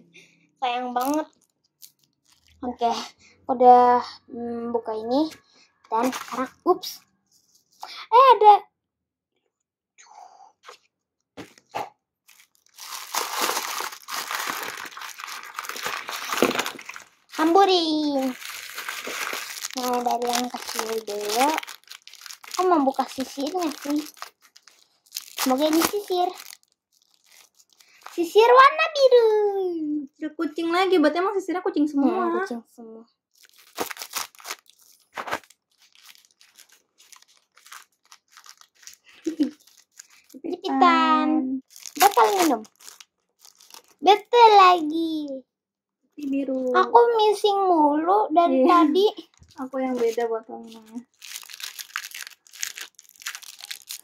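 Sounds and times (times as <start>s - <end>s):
plastic wrapper crinkling: 1.0s - 2.6s, 6.0s - 6.6s, 12.2s - 28.5s, 33.3s - 40.4s, 41.6s - 44.3s, 49.2s - 54.0s.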